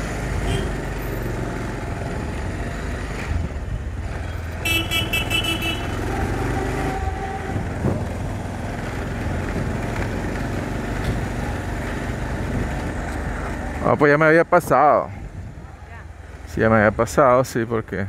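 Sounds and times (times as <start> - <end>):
wind and road noise: 0.0 - 18.0
horn short toots: 4.6 - 6.0
motorcycle engine running: 7.1 - 14.0.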